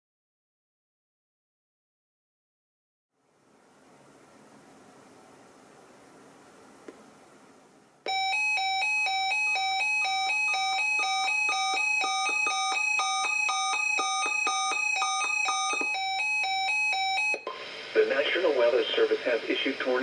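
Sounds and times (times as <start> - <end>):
alarm electronic beeps: 8.1 - 17.6.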